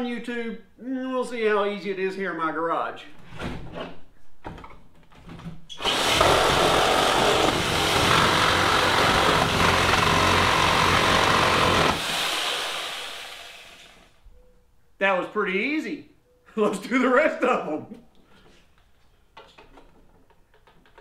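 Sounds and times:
reciprocating saw cutting wood: 5.8s - 14.1s.

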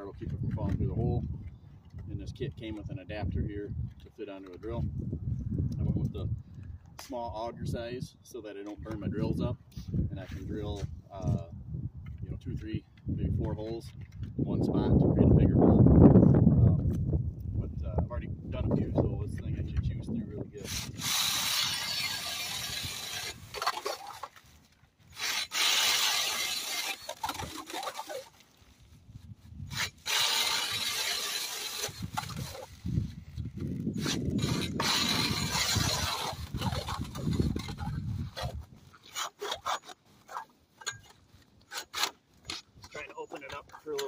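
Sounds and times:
drill auger grinding through ice: 20.6s - 24.5s, 25.1s - 28.5s, 29.6s - 40.0s.

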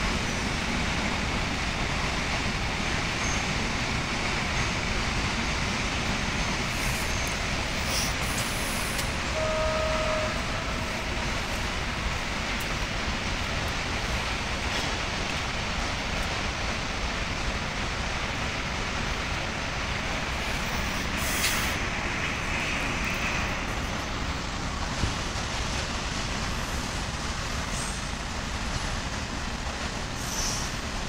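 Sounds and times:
burst of hissing air: 7.8s - 9.1s, 20.4s - 21.8s.

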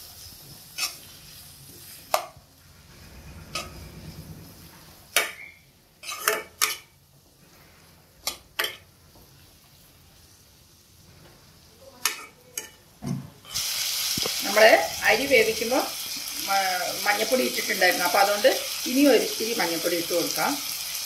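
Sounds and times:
faint sizzle: 0.0s - 21.0s
spoon scraping a wok: 0.2s - 2.3s, 5.0s - 7.0s.

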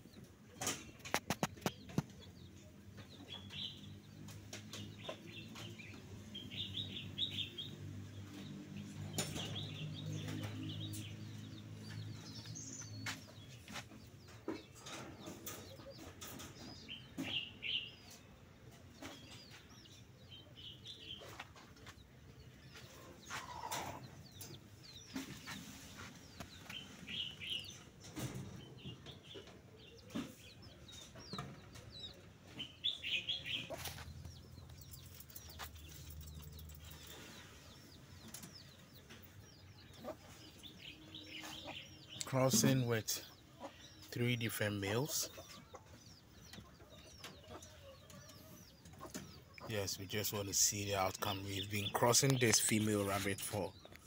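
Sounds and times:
small birds chirping: 0.0s - 54.0s
chicken clucking: 22.7s - 54.0s.

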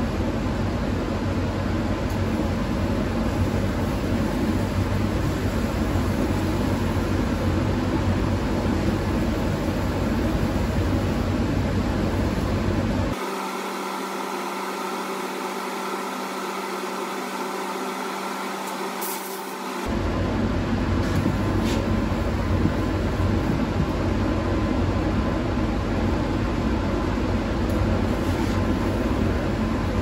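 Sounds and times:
powder coat gun spraying: 18.6s - 19.7s.

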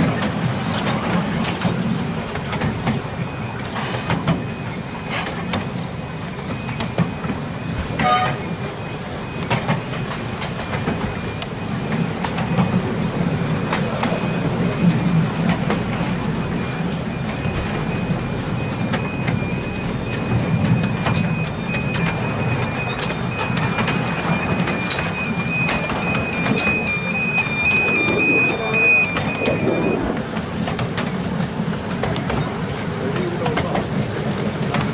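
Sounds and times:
diesel locomotive engine drone: 0.0s - 34.9s
wheels clicking over rail joints: 0.0s - 34.9s
thin high whine: 25.0s - 30.6s.

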